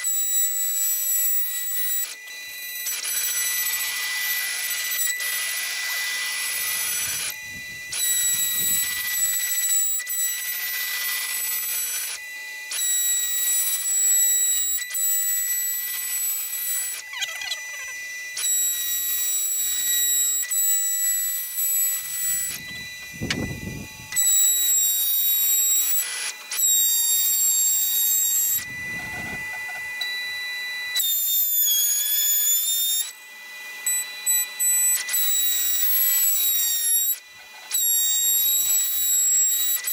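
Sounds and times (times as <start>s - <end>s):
router spindle whine cutting wood: 0.0s - 39.9s.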